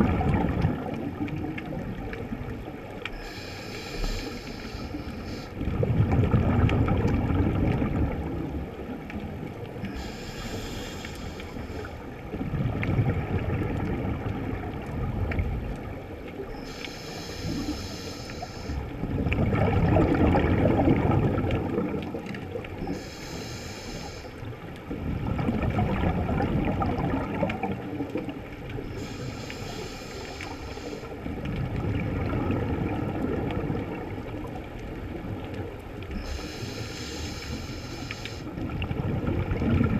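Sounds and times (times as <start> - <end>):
exhaled bubbles gurgling: 0.0 - 39.9
inhale hiss through regulator: 3.1 - 5.7, 9.8 - 12.1, 16.5 - 18.9, 22.8 - 24.5, 28.8 - 31.3, 36.1 - 38.6.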